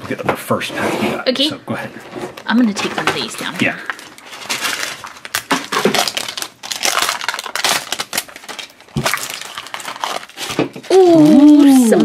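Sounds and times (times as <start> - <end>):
plastic wrapper crackling: 2.7 - 12.0.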